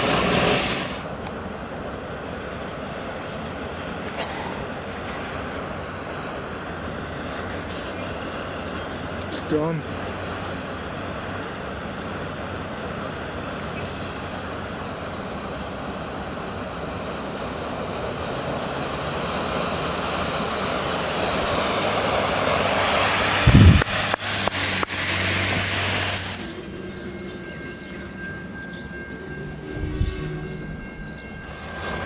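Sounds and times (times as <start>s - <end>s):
car tyres spraying flood water: 0.0s - 1.2s, 16.2s - 26.5s.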